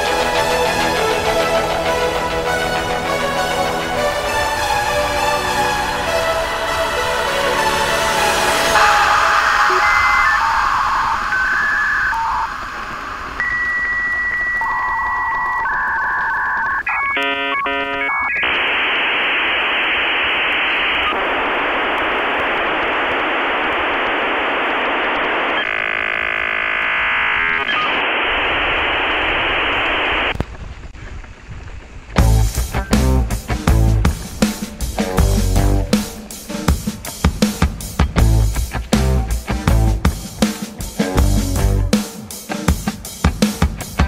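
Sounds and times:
static hiss: 0:00.0 - 0:44.0
warbling modem tones: 0:06.1 - 0:30.4, 0:32.2 - 0:37.3
modem beeps: 0:08.8 - 0:19.8.

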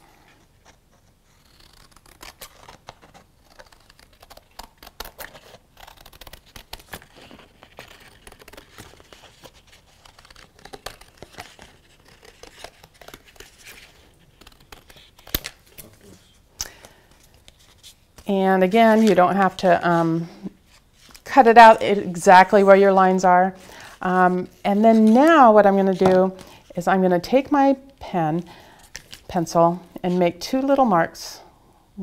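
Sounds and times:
scissors snipping paper: 0:01.4 - 0:15.9
paper rustling: 0:02.0 - 0:21.4, 0:22.5 - 0:25.5.

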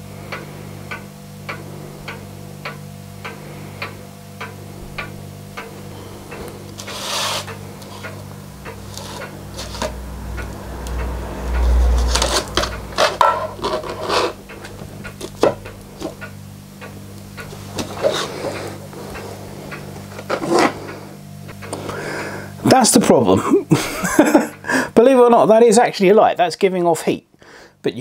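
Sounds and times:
steady low hum: 0:00.0 - 0:28.0
low rumble: 0:09.4 - 0:13.7
hands handling things on a workbench: 0:12.1 - 0:16.2.

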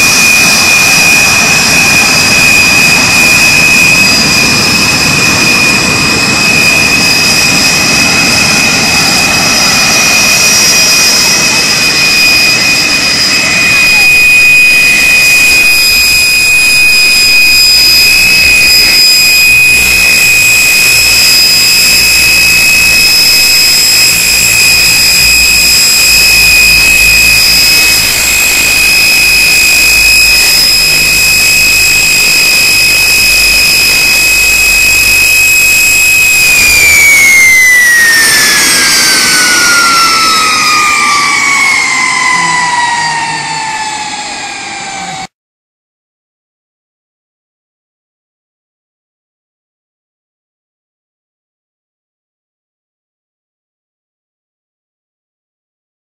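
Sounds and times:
jet engines whining: 0:00.0 - 0:45.3.

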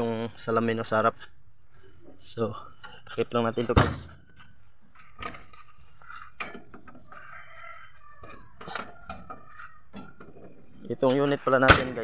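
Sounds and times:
rooster crowing faintly: 0:07.1 - 0:10.1.

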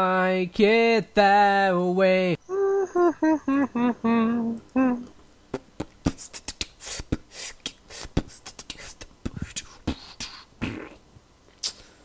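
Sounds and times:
person beatboxing: 0:05.5 - 0:11.0, 0:11.6 - 0:11.9.

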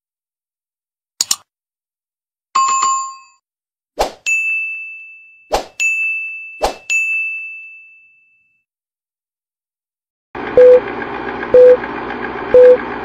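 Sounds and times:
click: 0:01.2 - 0:01.4
film countdown noise with beeps: 0:10.6 - 0:10.8, 0:11.5 - 0:11.8, 0:12.5 - 0:12.8.

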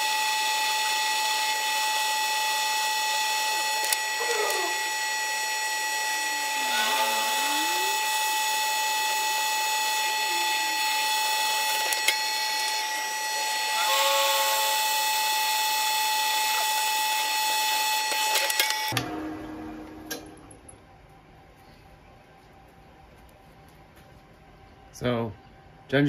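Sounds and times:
drill bit squealing in metal: 0:00.0 - 0:18.9
drill press whining: 0:00.0 - 0:20.7.

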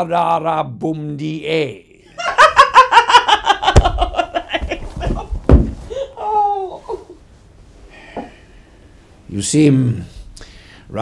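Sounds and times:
woman laughing hard: 0:02.2 - 0:07.2
dull thumps: 0:03.6 - 0:06.0.

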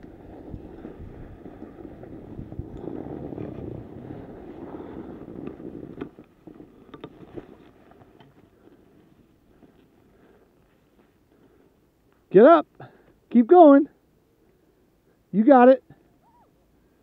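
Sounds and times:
wind on microphone: 0:00.0 - 0:07.5
skis scraping on packed snow: 0:00.0 - 0:11.8.

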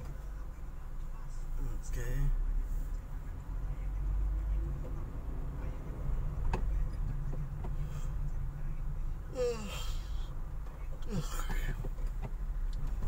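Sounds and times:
car engine and tyres rumbling: 0:00.0 - 0:13.0.

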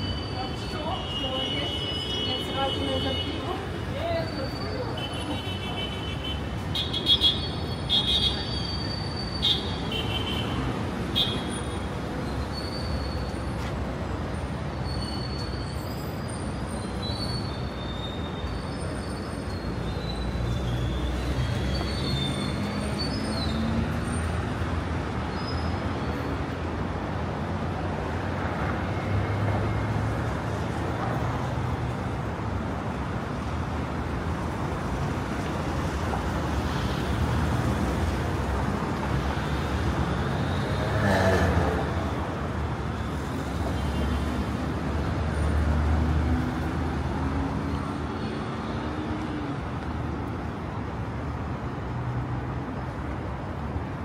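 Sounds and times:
cars driving past: 0:34.6 - 0:54.0.

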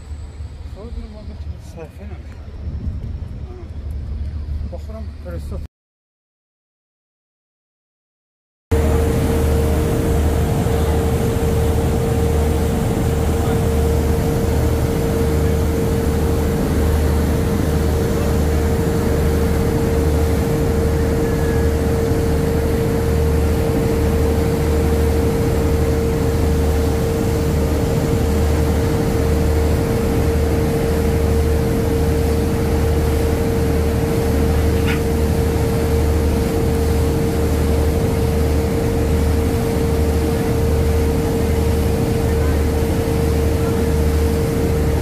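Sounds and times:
boat engine running: 0:08.7 - 0:45.0.

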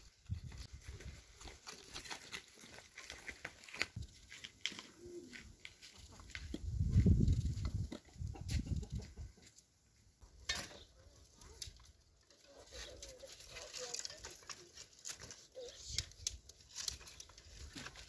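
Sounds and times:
dry twigs snapping and clattering: 0:10.4 - 0:18.0.

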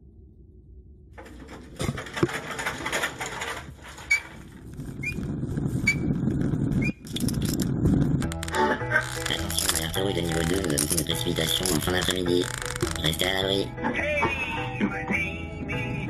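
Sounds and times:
handcar clattering on rails: 0:01.2 - 0:04.7, 0:08.3 - 0:13.6
short squeaks: 0:03.8 - 0:06.1, 0:09.0 - 0:09.6, 0:12.4 - 0:13.1.

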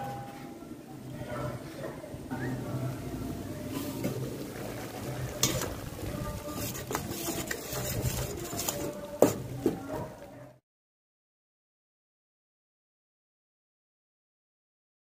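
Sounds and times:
metal ladle scraping a pot: 0:03.7 - 0:10.1.

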